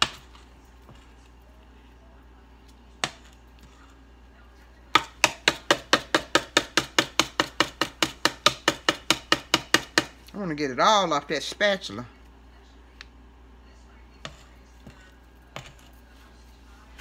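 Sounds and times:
spatula tapping mixing bowl: 3.0 - 3.4, 4.9 - 10.2, 14.2 - 16.0.

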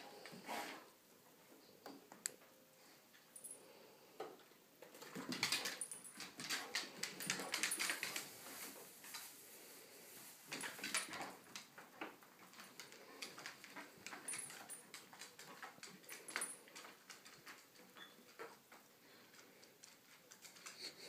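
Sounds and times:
dog claws clicking on hard floor: 4.8 - 8.4, 10.5 - 20.9.

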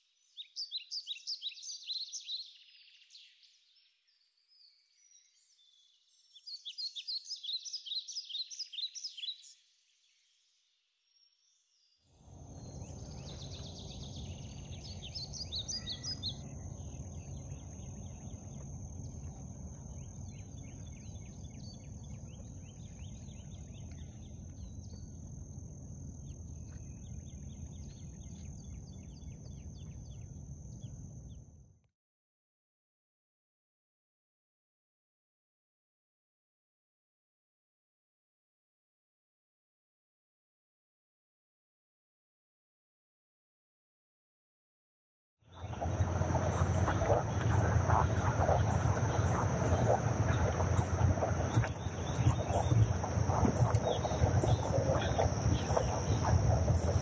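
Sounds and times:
birds and insects chirping: 0.1 - 10.4, 11.1 - 31.7, 45.4 - 57.0
steady low rumble: 12.3 - 30.1, 45.6 - 57.0
high-pitched insect drone: 45.6 - 57.0.

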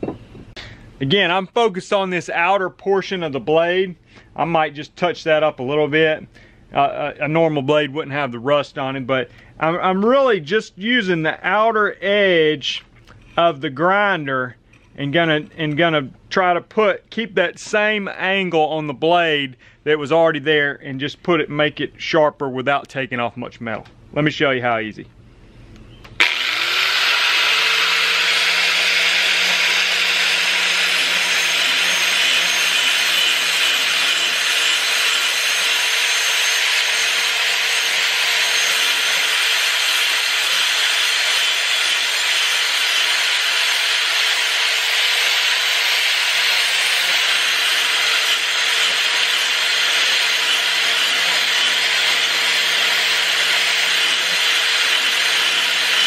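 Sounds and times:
angle grinder motor spinning up: 26.2 - 56.0
grinder grinding steel: 26.2 - 56.0.

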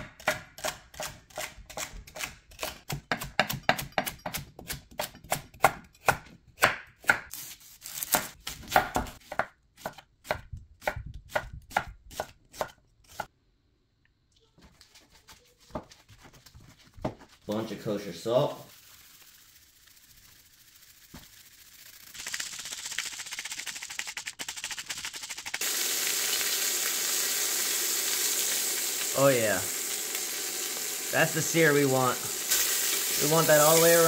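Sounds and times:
knife chopping vegetables: 0.0 - 13.3.

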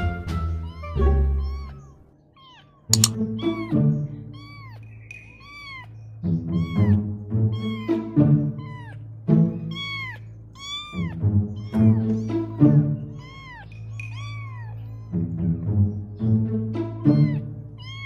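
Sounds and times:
kittens meowing: 0.4 - 16.2, 17.0 - 18.0.

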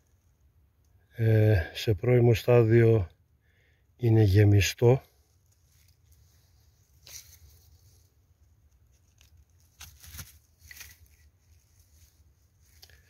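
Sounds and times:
rustling of dry pine needles: 5.1 - 13.0.

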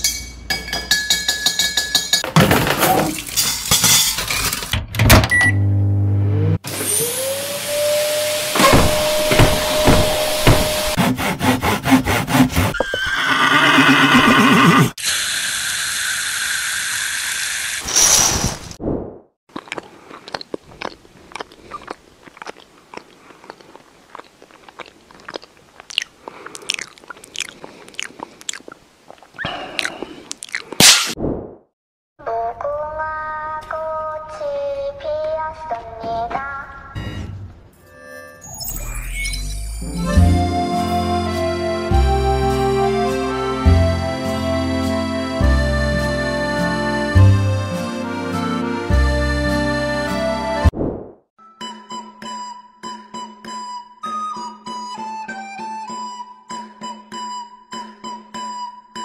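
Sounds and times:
microwave oven beep: 5.1 - 6.1
chewing sandwich crunches: 19.5 - 30.8.

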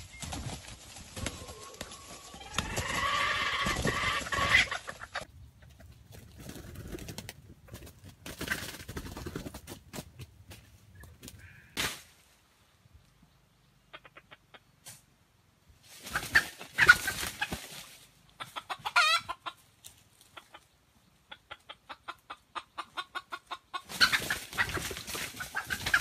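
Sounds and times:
rooster calling: 1.2 - 4.9.

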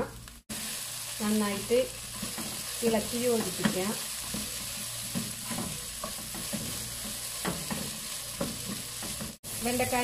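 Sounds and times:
okra sizzling in a pan: 0.0 - 10.0
spatula scraping a pan: 2.1 - 9.4.

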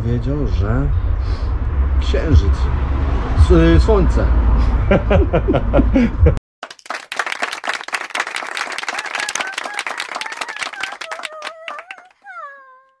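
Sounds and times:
crowd clapping: 6.6 - 12.3
wavering cheer: 6.8 - 12.6.

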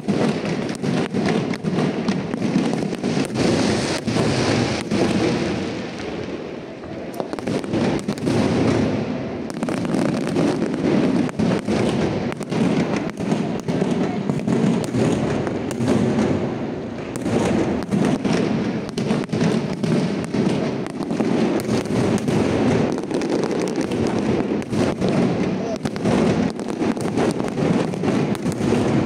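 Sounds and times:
fireworks bangs and crackle: 0.0 - 29.0.

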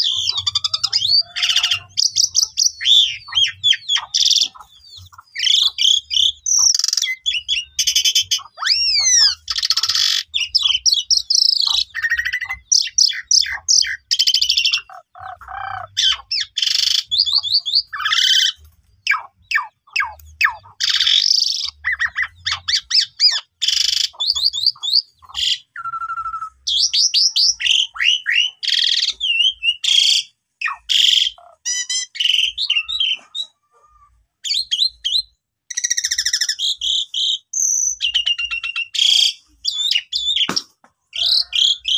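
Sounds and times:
starling singing: 0.0 - 41.9.

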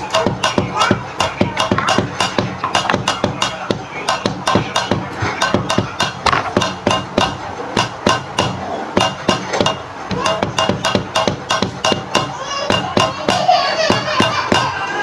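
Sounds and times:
music with fast percussive beat: 0.0 - 15.0.

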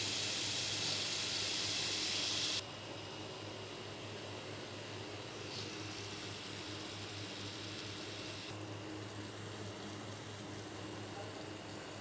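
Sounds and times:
food hissing in a pan: 0.0 - 2.6, 5.3 - 8.5
gas stove hum: 0.0 - 12.0.

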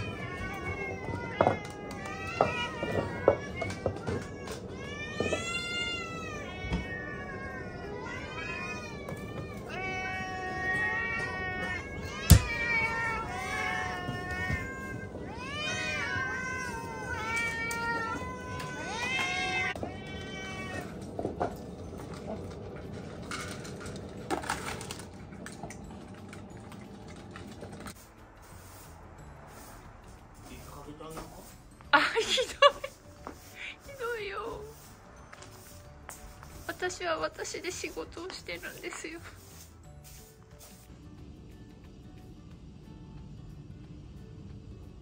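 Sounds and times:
cat meowing: 0.0 - 21.0
dry kibble rattling into bowls: 8.0 - 28.0.

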